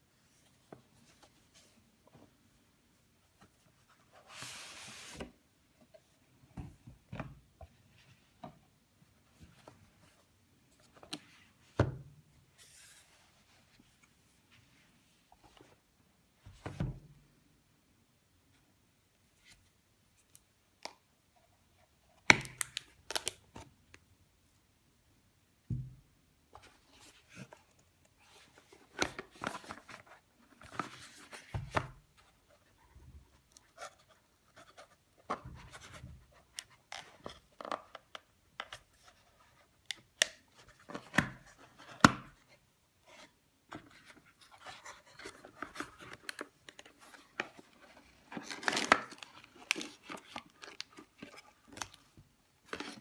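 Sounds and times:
gloved hands handling packaging: 0:43.8 - 0:53.0.

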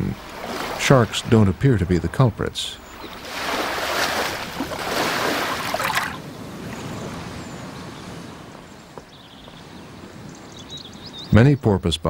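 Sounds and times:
surf washing up beach: 0:00.0 - 0:08.9
outdoor background noise: 0:00.0 - 0:12.0.

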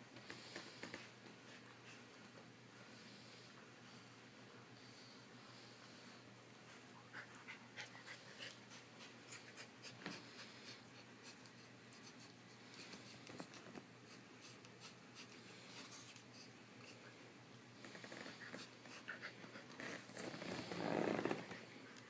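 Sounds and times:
paws and claws scrabbling on carpet: 0:17.8 - 0:22.0.

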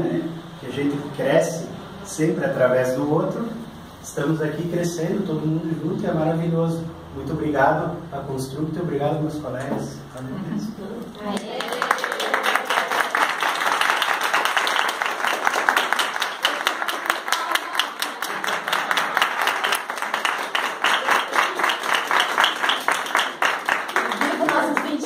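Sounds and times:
group of people clapping: 0:11.3 - 0:25.0.

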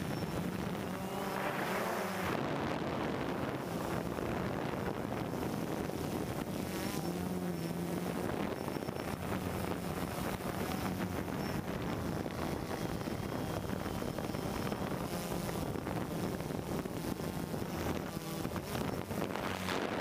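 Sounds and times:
drone propellers buzzing: 0:00.0 - 0:20.0
wind over microphone: 0:00.0 - 0:20.0.

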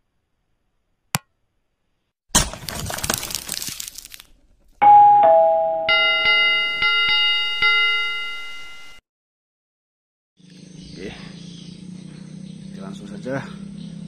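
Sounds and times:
small bell ringing: 0:04.8 - 0:09.0
two-note doorbell chime: 0:04.8 - 0:09.0.

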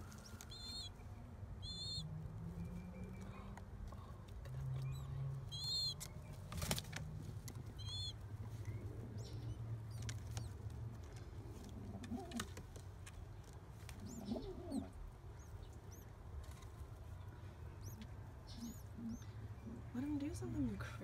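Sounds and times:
pigeon cooing: 0:11.6 - 0:12.6, 0:14.0 - 0:15.0, 0:17.8 - 0:19.9.

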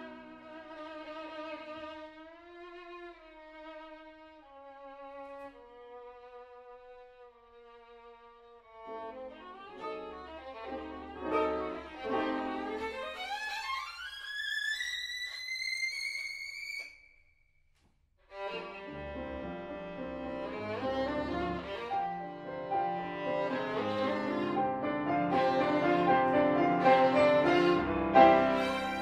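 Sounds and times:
string passage: 0:08.7 - 0:17.2, 0:18.3 - 0:29.0.

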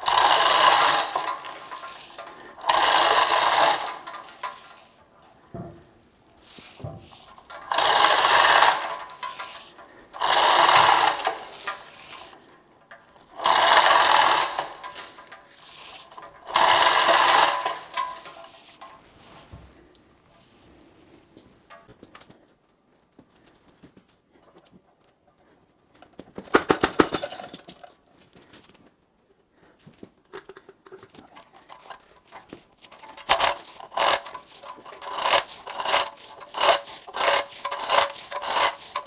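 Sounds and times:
chain hoist lifting: 0:00.0 - 0:05.5, 0:06.4 - 0:19.4, 0:26.5 - 0:27.9, 0:30.4 - 0:39.0.

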